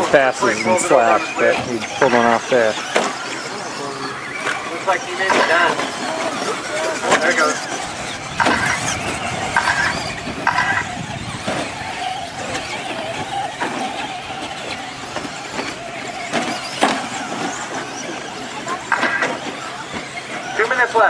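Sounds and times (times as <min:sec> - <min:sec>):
rc truck motors whining: 0:00.0 - 0:21.0
trucks knocking on landing: 0:00.0 - 0:21.0
tyre noise on dirt: 0:02.5 - 0:20.7.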